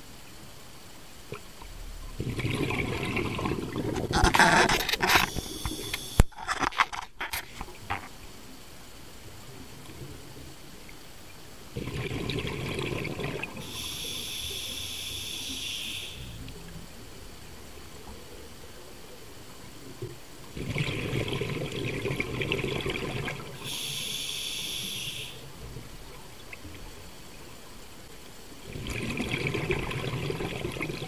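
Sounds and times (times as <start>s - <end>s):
exhaled bubbles: 1.3s - 6.0s, 11.8s - 18.3s, 20.4s - 24.1s, 28.6s - 31.0s
regulator hissing whistle: 5.2s - 6.2s, 13.6s - 16.4s, 23.6s - 25.4s.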